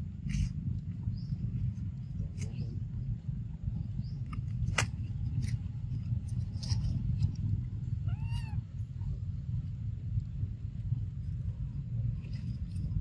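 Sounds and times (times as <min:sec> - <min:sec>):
low rumble: 0:00.0 - 0:13.0
baby monkey squeaky cry: 0:08.1 - 0:08.6.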